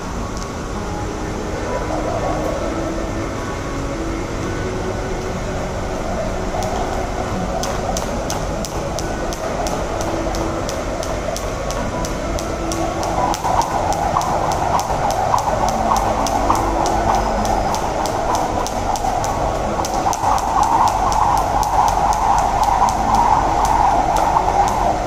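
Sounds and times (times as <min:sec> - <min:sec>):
steady background rumble: 0:00.0 - 0:25.0
jump rope ticking on pavement: 0:06.4 - 0:25.0.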